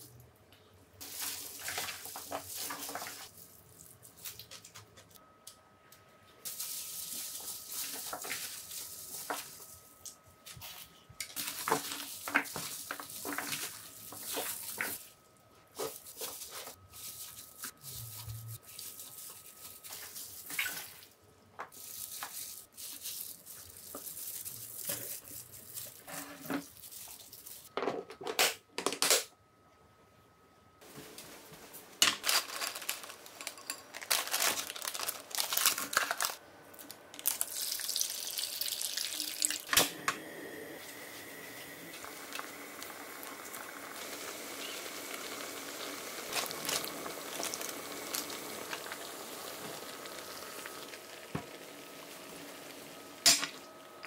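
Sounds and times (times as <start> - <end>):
wet squishy rustling of greens: 1.0 - 4.9, 6.5 - 27.7, 34.0 - 36.4, 44.6 - 51.0.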